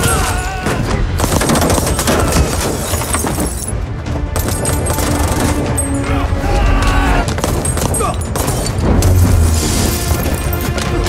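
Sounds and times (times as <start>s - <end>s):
rapid gunfire: 0.0s - 3.4s, 4.4s - 5.8s, 7.3s - 9.2s.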